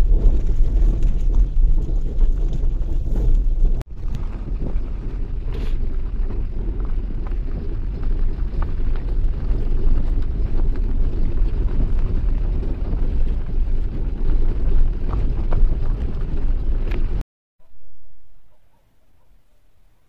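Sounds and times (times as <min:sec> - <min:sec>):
wind buffeting microphone: 0:00.0 - 0:17.2.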